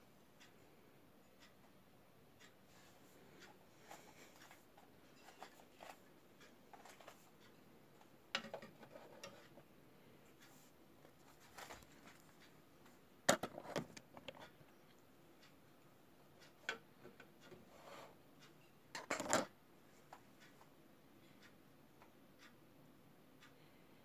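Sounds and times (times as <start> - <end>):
plastic model clicking and knocking: 8.3 - 9.5, 13.3 - 14.4, 18.9 - 19.5.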